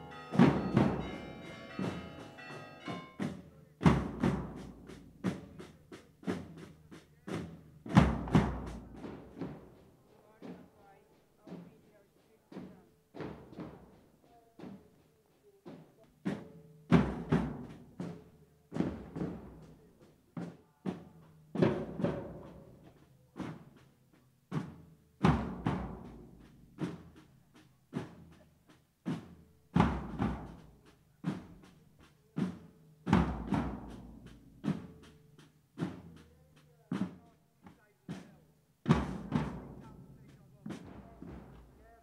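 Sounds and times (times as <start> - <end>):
drum corps beating slow cadence: 0.0 - 42.0.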